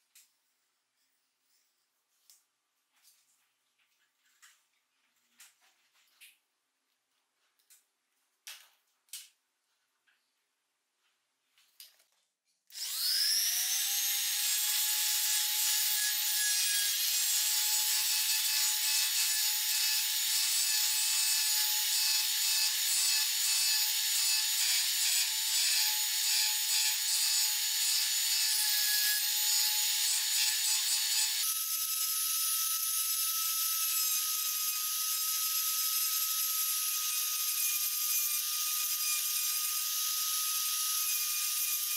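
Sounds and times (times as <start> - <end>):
rotary tool motor whine: 12.7 - 16.1
rotary tool carving wood: 12.7 - 41.9.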